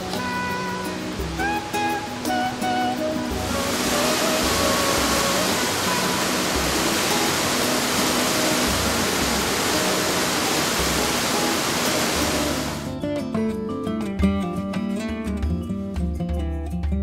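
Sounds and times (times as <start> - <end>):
whitewater rushing over rocks: 0.0 - 12.9
soft instrumental music: 0.0 - 17.0.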